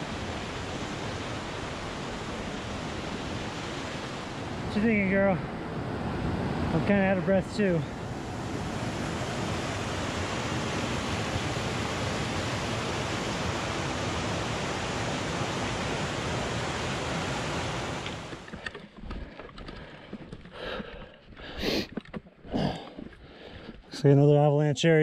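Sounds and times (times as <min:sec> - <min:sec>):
water rushing over boulders: 0:00.0 - 0:19.8.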